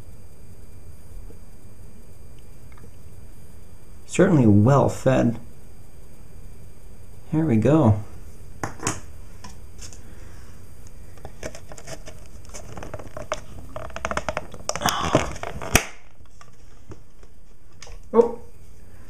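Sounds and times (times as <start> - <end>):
packaging rustling: 11.2 - 17.9.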